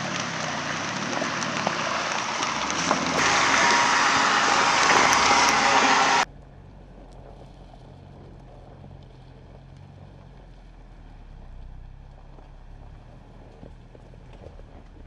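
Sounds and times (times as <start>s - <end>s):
pressure washer spray hissing: 3.2s - 6.2s.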